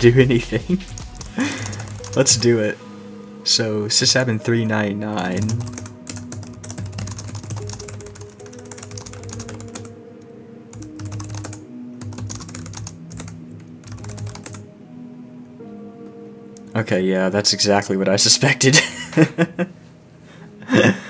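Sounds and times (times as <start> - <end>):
background music: 0.0 - 21.0
computer keyboard typing: 0.8 - 2.5, 5.2 - 10.0, 10.7 - 14.6.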